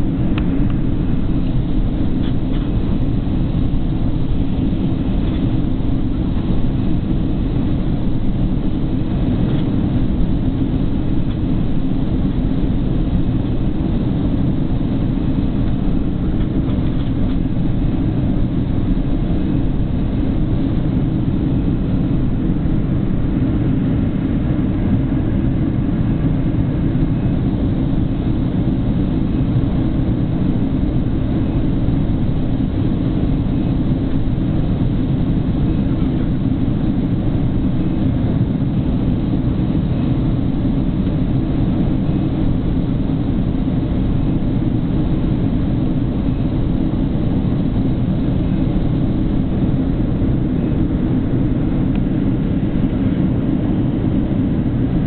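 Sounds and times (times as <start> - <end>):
airliner cabin roar: 0.0 - 55.0.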